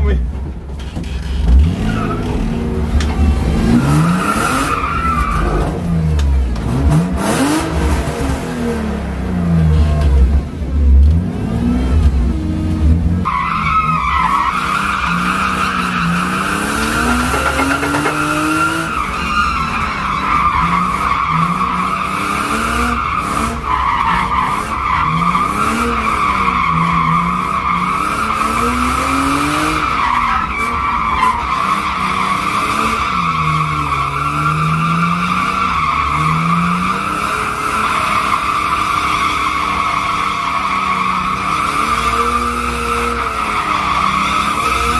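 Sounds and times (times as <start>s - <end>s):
car engine revving: 14.6s - 19.8s
tyres squealing: 15.2s - 19.2s.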